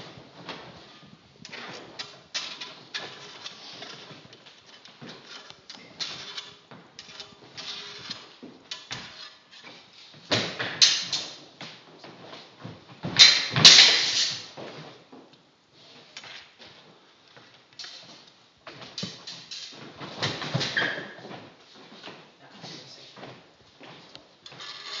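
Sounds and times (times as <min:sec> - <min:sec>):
footsteps on wooden floor: 0:16.6 - 0:24.7.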